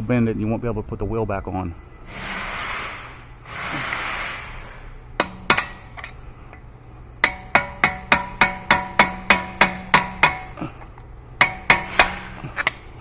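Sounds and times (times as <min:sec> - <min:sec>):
hammer striking metal punch: 0:05.2 - 0:05.9, 0:07.2 - 0:10.6, 0:11.4 - 0:12.8.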